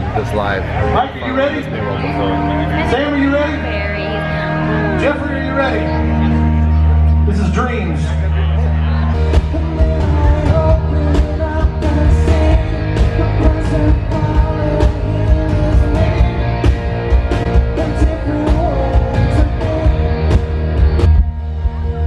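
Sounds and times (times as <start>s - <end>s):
live rock band over pa: 0.0s - 22.0s
man singing: 9.3s - 20.6s.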